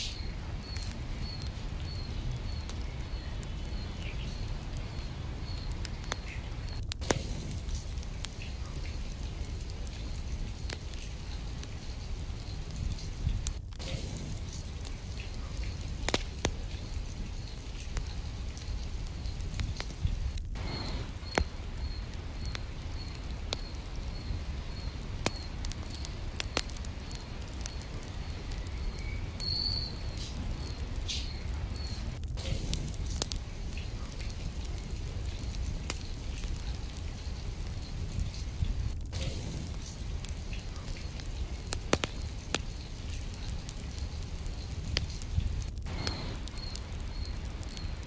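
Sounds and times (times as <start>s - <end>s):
steady rain: 0.0s - 48.0s
faint high chirp: 27.6s - 32.1s.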